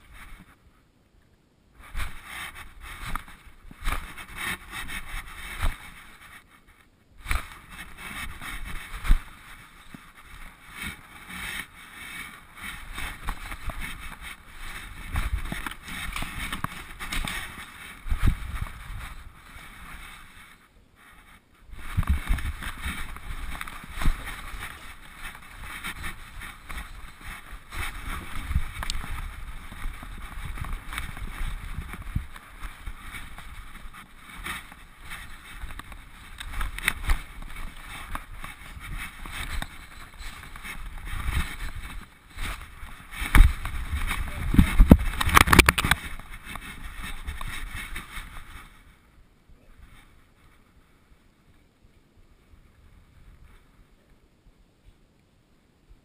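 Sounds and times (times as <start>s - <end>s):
camera mount rubbing against fur: 7.2s - 48.8s.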